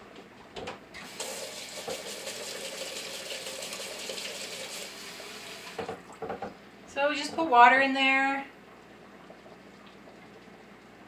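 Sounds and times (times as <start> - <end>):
faucet running into steel bowl: 1.0 - 6.0.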